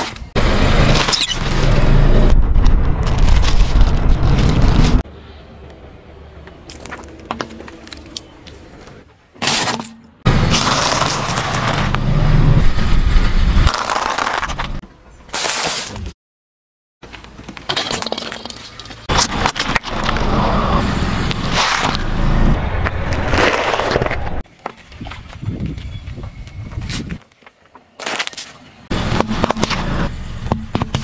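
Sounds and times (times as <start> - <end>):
tyres crushing objects: 9.3 - 12.0, 13.7 - 14.8
tyre grit on asphalt: 10.3 - 12.1, 13.6 - 16.1, 21.3 - 25.5.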